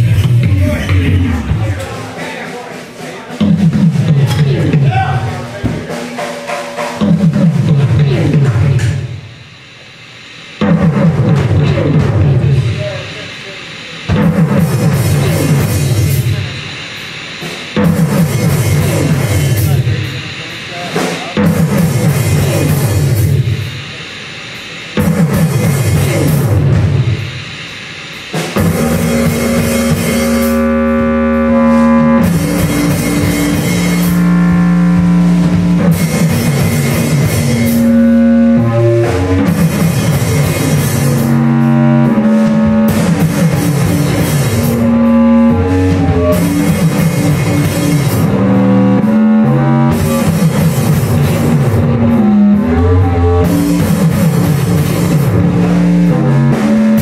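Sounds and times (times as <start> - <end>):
drum kit beat: 0.0 - 9.9, 10.5 - 57.0
electric guitar notes: 28.6 - 57.0.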